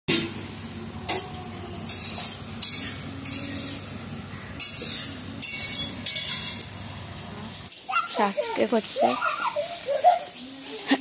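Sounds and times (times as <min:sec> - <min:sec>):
metal utensil scraping steel pot: 0:01.2 - 0:06.9.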